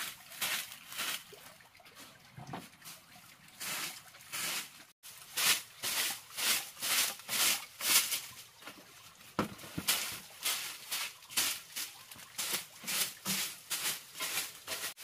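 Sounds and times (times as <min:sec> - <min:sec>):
dull thumps: 0:09.4 - 0:10.0.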